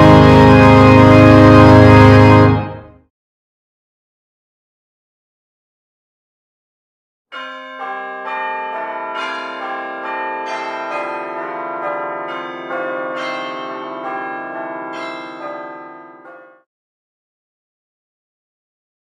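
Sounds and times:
bells pealing: 0.0s - 2.8s, 7.3s - 16.5s.

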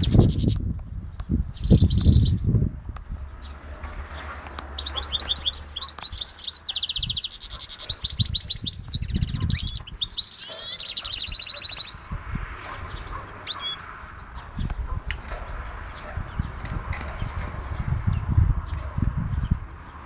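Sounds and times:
bird singing trills: 0.0s - 2.5s, 4.7s - 12.1s, 12.9s - 18.3s.

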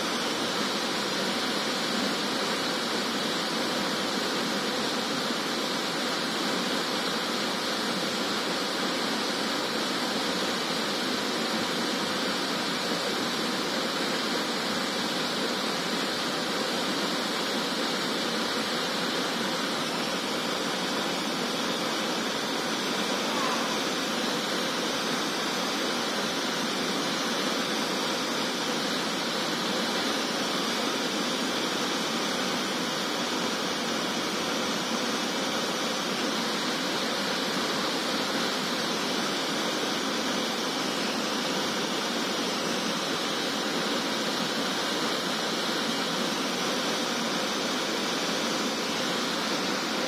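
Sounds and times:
small waterfall pouring: 0.0s - 50.0s.

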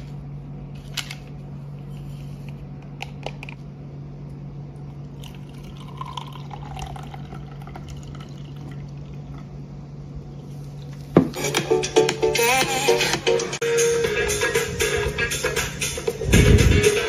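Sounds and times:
constant low hum: 0.0s - 17.0s
water pouring into tumbler: 5.1s - 9.5s.

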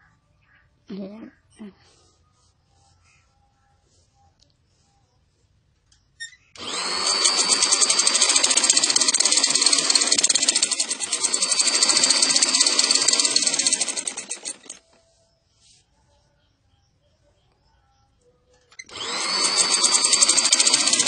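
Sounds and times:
sewing machine stitching: 6.6s - 15.0s, 18.7s - 21.0s.

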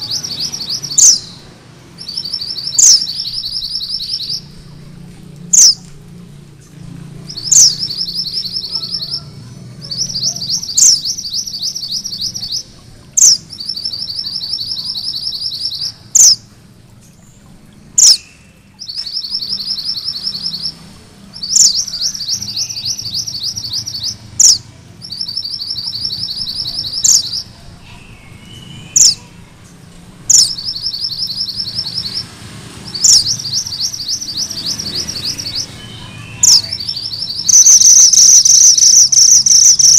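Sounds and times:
bird sweeping whistle: 35.3s - 39.9s.

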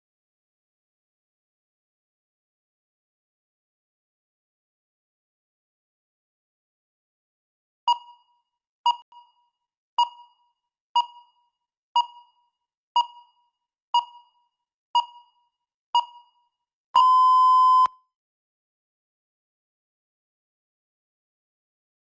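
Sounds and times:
timer beeps: 7.9s - 18.0s.

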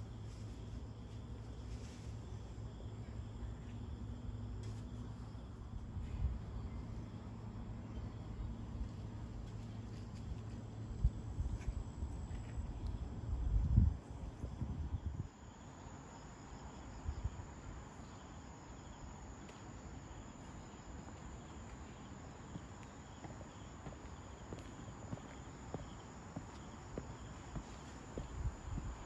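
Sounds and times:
night insects trilling: 14.2s - 29.0s.

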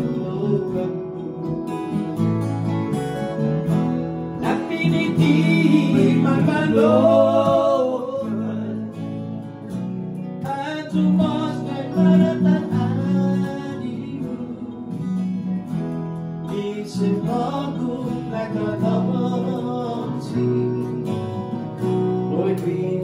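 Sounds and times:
small band playing: 0.0s - 16.0s.

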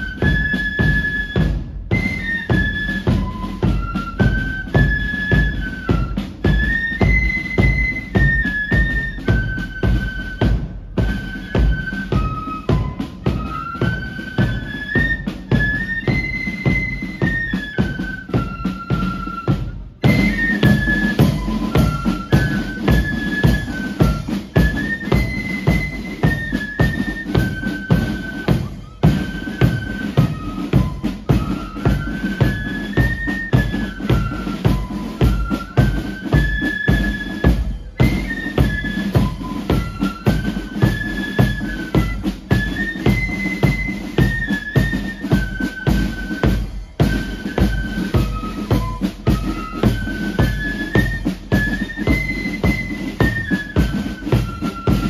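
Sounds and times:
flutes playing a tune: 0.0s - 55.0s
steady drumbeat: 0.0s - 55.0s.

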